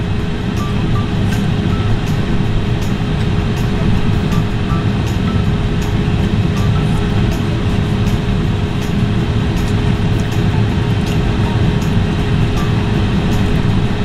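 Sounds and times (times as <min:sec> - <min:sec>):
car cabin rumbling hiss: 0:00.0 - 0:14.0
constant hum: 0:00.0 - 0:14.0.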